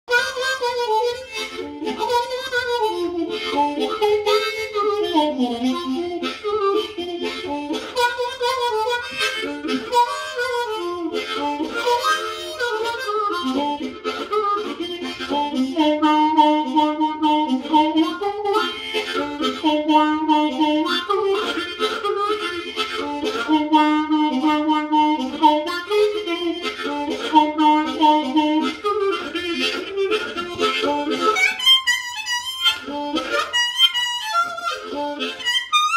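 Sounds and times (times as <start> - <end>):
harmonica playing: 0.0 - 35.9.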